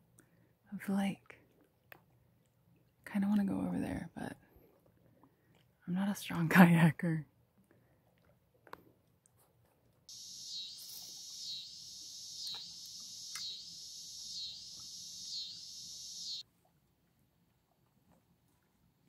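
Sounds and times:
insects buzzing: 0:10.1 - 0:16.4.

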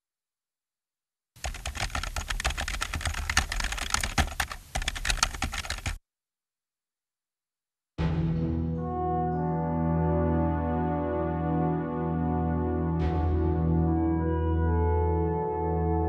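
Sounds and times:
typing keys clattering: 0:01.4 - 0:06.0.

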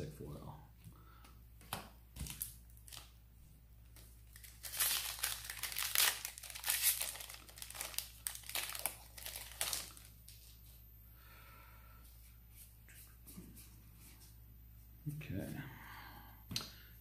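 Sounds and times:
foil wrapper crinkling: 0:02.2 - 0:03.1, 0:03.9 - 0:10.5.

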